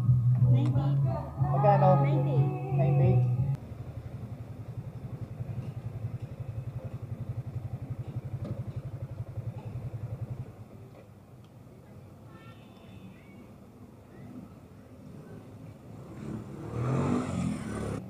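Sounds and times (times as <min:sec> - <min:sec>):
faint street traffic: 0:00.0 - 0:18.0
motorcycle engine putter: 0:05.4 - 0:11.1.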